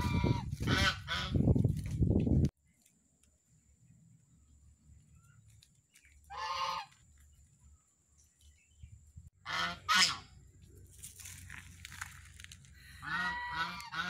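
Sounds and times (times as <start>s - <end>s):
geese honking: 6.3s - 7.0s, 9.4s - 10.4s, 13.0s - 14.0s.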